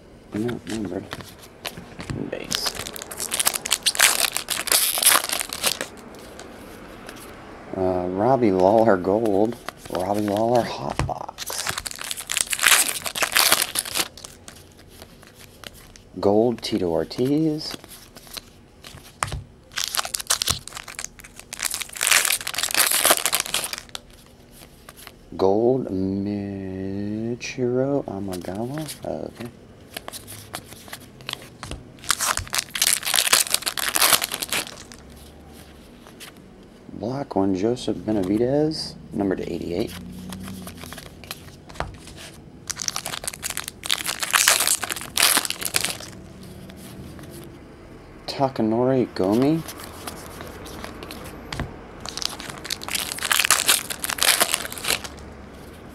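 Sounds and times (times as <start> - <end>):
foil card pack crinkling: 2.4 - 6.5, 8.6 - 16.1, 17.1 - 25.2, 29.9 - 35.2, 39.8 - 46.2, 49.2 - 51.4, 52.0 - 55.2.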